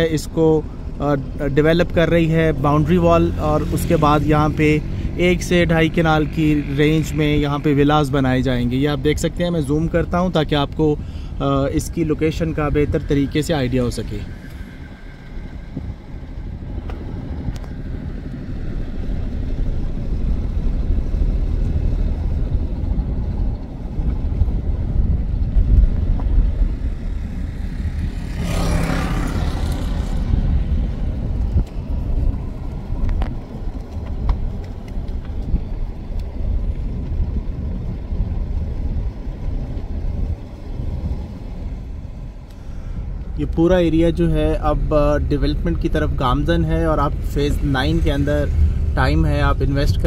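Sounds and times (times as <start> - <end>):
car road rumble from inside: 0.0 - 50.0
motorcycle passing: 2.4 - 8.3, 26.3 - 36.0.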